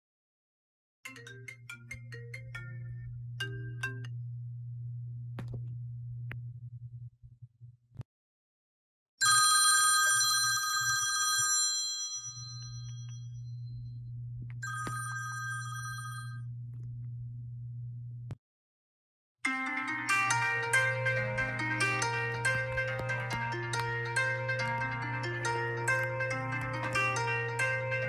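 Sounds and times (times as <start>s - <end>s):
low steady hum: 1.2s - 8.0s, 12.4s - 18.4s, 20.1s - 28.0s
phone alarm ringing: 14.6s - 16.4s
short melodic tone: 19.5s - 28.0s.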